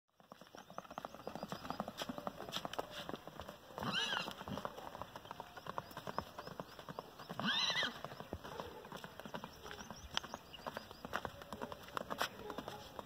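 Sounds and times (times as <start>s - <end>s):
hoofbeats on dry dirt: 0.1s - 13.0s
horse whinnying: 3.8s - 4.4s, 7.4s - 8.0s.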